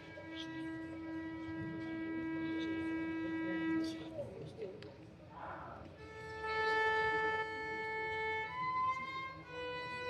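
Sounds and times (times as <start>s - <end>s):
solo violin playing long notes: 0.0s - 3.8s, 6.0s - 10.0s.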